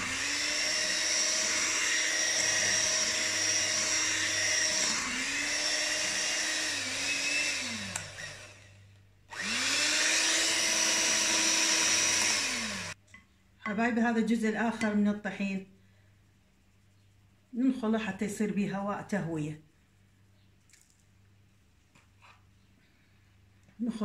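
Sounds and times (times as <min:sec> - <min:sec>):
electric mixer running: 0:00.0 - 0:13.0.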